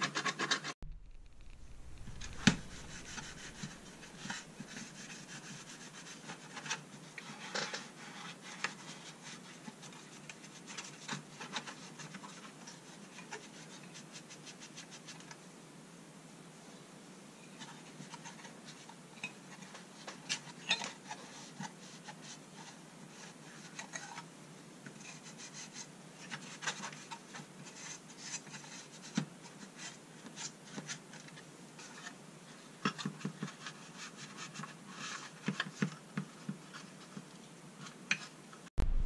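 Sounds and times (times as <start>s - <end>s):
cloth rubbing on metal: 0.4s - 6.6s.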